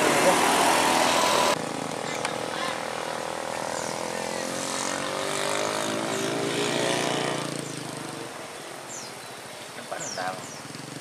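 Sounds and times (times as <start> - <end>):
vehicle engine passing: 0.0 - 9.1.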